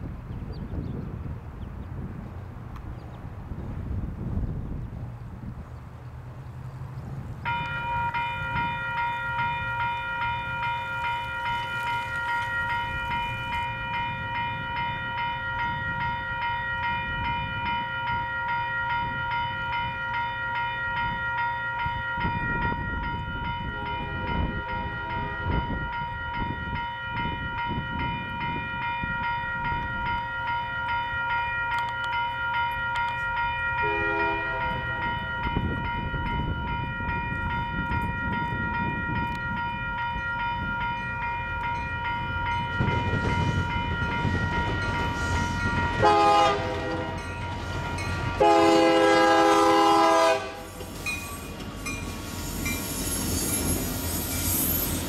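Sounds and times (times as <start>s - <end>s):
crossing warning bell ringing: 7.4s - 55.0s
distant locomotive horn: 23.6s - 25.8s, 33.8s - 35.2s, 44.4s - 50.9s.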